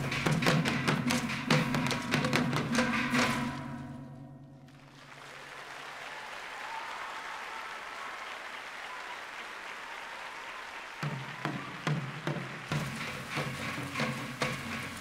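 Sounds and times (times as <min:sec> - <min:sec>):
audience applauding: 0:04.7 - 0:15.0.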